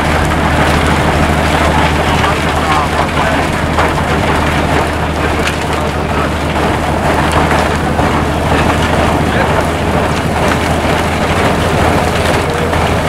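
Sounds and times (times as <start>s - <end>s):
low engine drone: 0.0s - 13.0s.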